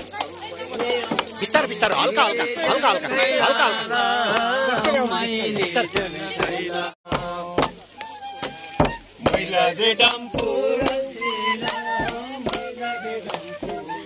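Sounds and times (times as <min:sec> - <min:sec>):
men singing together: 0:00.8 - 0:07.8, 0:08.4 - 0:14.0
frame drums beaten: 0:07.1 - 0:07.8, 0:08.4 - 0:12.8.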